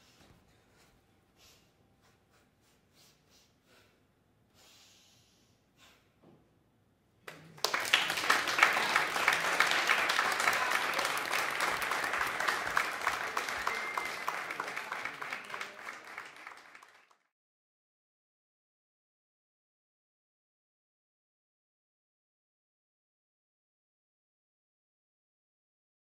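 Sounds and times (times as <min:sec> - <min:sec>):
audience applauding: 0:07.3 - 0:17.3.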